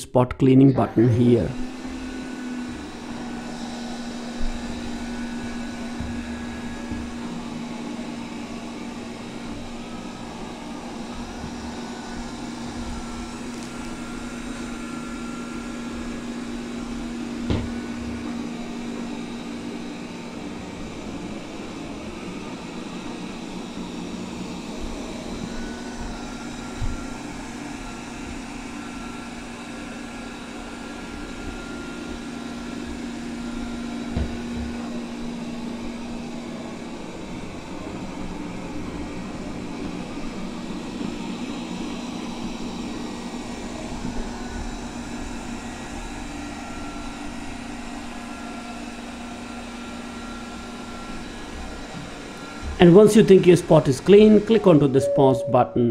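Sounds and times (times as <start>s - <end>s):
robot vacuum motor hum: 1.0s - 55.2s
faint whine: 54.6s - 55.9s.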